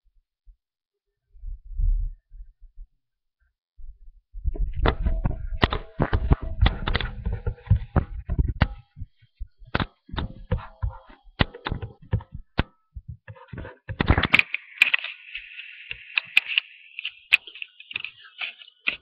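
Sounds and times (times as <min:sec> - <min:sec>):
clicks and knocks: 0:04.7 - 0:19.0.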